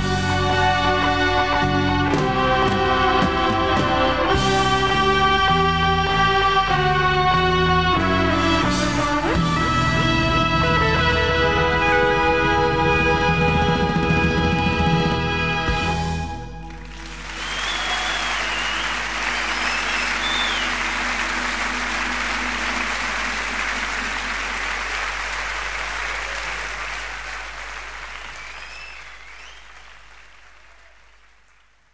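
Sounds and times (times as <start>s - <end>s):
audience applauding: 16.6s - 31.9s.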